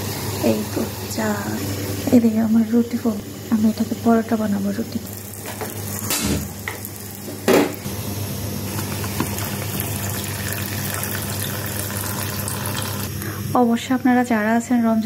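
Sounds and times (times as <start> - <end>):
tea bubbling: 4.8 - 8.0, 8.6 - 13.3
milk pouring into pan: 8.8 - 13.2.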